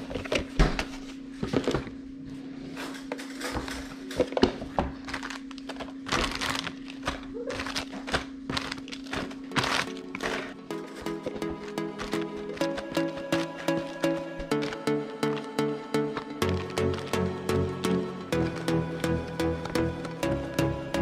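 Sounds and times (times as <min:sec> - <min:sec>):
cardboard and paper rustling: 0:00.0 - 0:02.0, 0:03.5 - 0:15.4.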